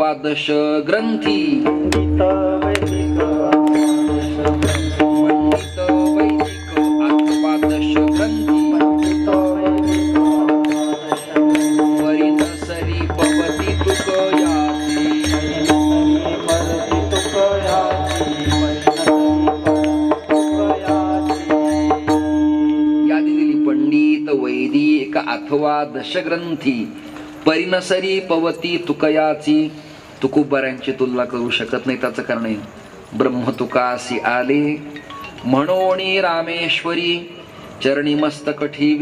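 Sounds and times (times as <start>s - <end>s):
harmonium drone with melody: 1.0s - 27.4s
small hand cymbals striking: 1.2s - 29.0s, 32.5s - 37.8s.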